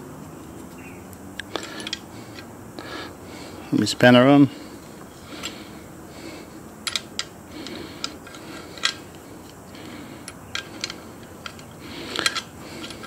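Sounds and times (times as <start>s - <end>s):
metallic ticks of spanner on nut: 10.2s - 13.0s.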